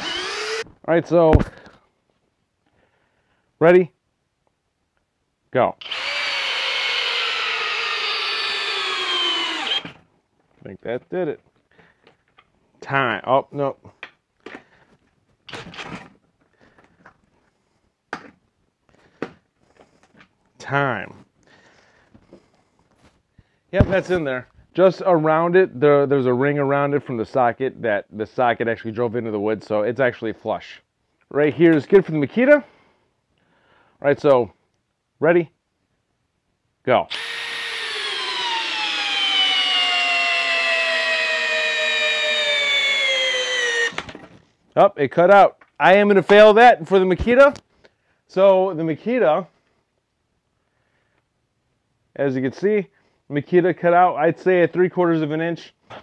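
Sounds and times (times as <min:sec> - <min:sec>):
power drill driving screw into wood: 0:00.0 - 0:00.7, 0:05.8 - 0:10.0, 0:37.1 - 0:44.3.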